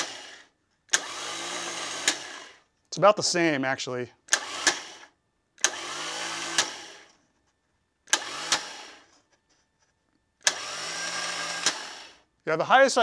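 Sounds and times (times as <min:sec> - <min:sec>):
starter motor whirring: 0:00.0 - 0:02.6, 0:04.3 - 0:07.2, 0:08.0 - 0:09.1, 0:10.4 - 0:12.3.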